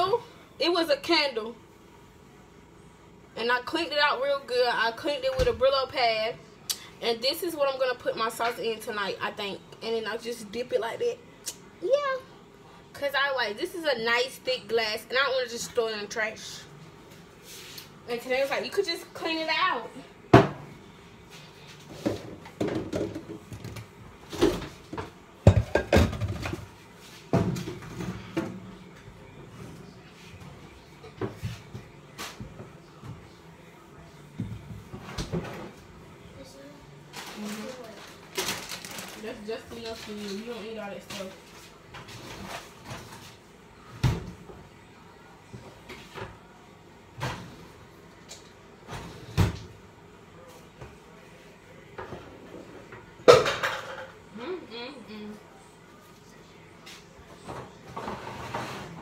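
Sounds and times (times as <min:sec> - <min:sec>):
cupboards and dishes clunking: 0:22.0 - 0:26.6.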